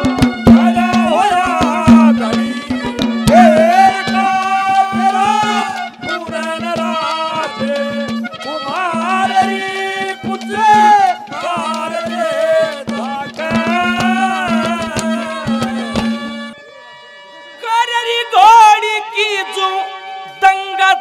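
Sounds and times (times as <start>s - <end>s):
hand drum strokes: 0.0s - 16.5s
folk melody sliding between notes: 0.0s - 21.0s.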